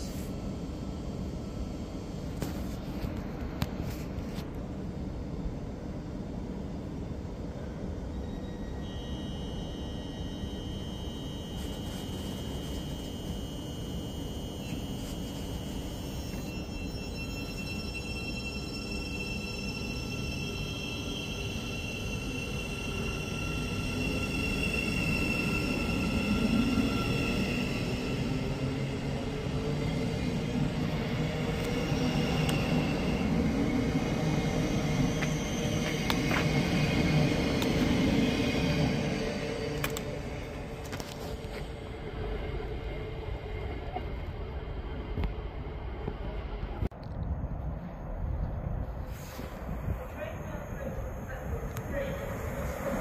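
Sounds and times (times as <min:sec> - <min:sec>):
faint high whine: 0:00.0 - 0:46.9
electric train low rumble: 0:00.0 - 0:53.0
high electric whine: 0:08.6 - 0:19.4.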